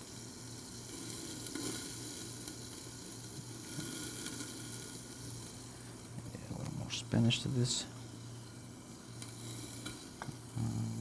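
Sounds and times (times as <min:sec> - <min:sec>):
chicken sizzling in hot oil: 0:00.0 - 0:11.0.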